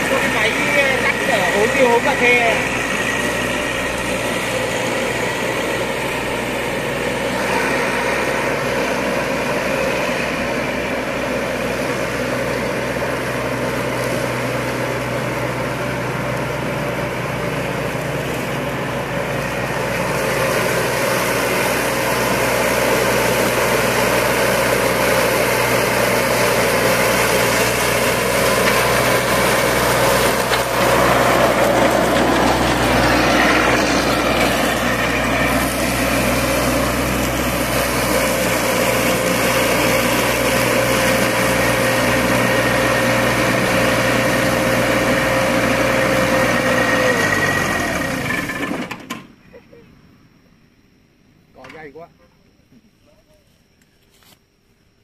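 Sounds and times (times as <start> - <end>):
mower deck cutting dry grass: 0.0 - 49.4, 54.0 - 54.4
ride-on mower running: 0.0 - 49.6.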